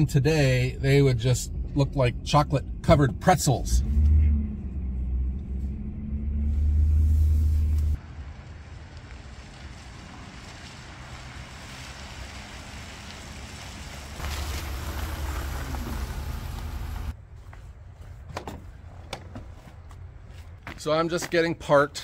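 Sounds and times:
pickup engine rumble inside cab: 0:00.0 - 0:08.0, 0:14.2 - 0:17.2
tyres on gravel: 0:08.0 - 0:22.0.

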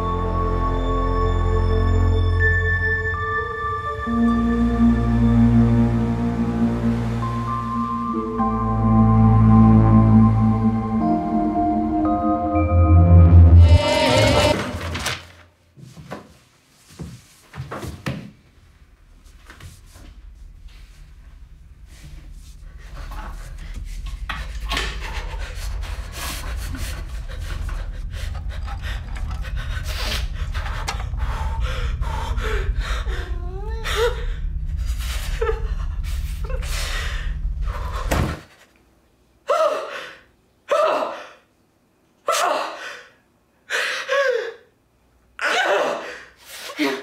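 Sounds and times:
deep low rumble: 0:02.0 - 0:15.4, 0:18.5 - 0:38.5.

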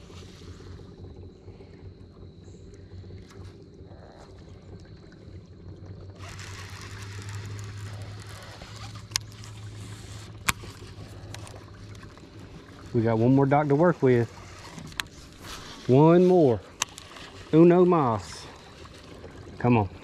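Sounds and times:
electric trolling motor humming: 0:00.0 - 0:20.0
water wash hissing: 0:06.2 - 0:20.0.

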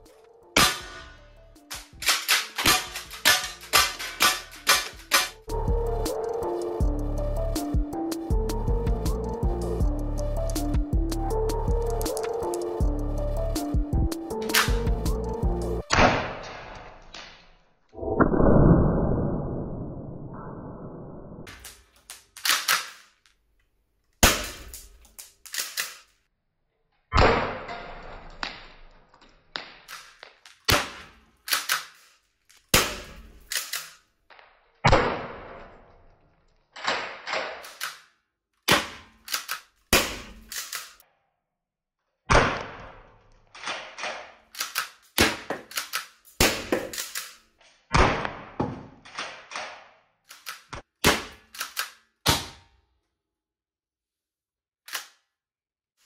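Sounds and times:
projectiles hitting target: 0:00.6 - 0:05.4
launcher shots: 0:42.3 - 0:43.0.

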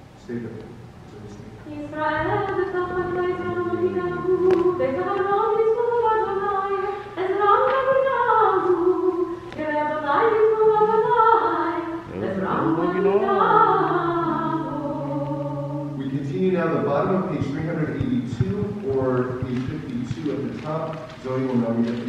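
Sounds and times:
girl singing unaccompanied: 0:01.7 - 0:16.1.

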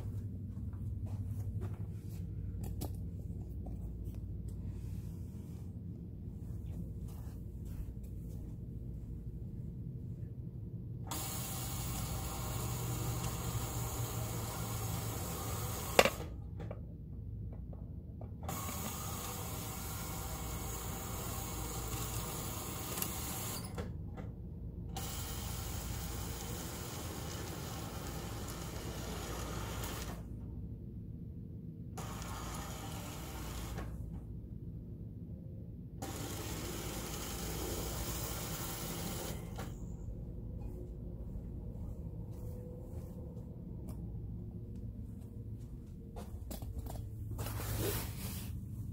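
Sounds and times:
curtain motor running: 0:11.0 - 0:16.4, 0:18.4 - 0:23.9, 0:24.9 - 0:30.3, 0:32.0 - 0:34.0, 0:36.0 - 0:39.9.

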